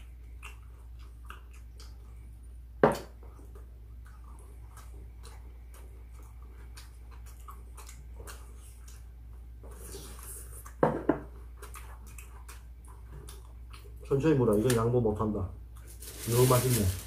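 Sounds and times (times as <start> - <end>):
close chewing: 0.0 - 2.5, 3.2 - 10.8, 11.4 - 14.2
bowl knocking on table: 10.8 - 11.2.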